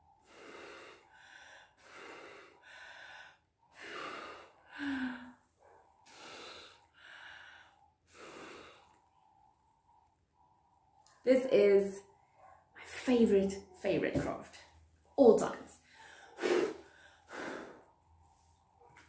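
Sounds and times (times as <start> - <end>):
person breathing hard in puffs: 0.0 - 10.8, 15.8 - 18.4.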